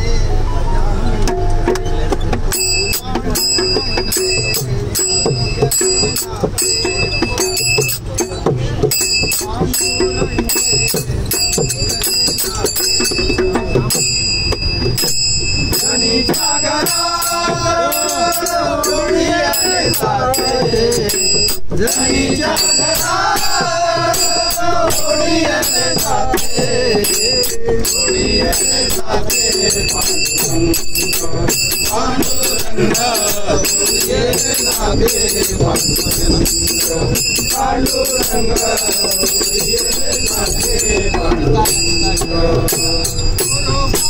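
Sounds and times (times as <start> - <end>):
hand clapping: 11.8 - 12.6
group singing devotional song: 15.7 - 44.0.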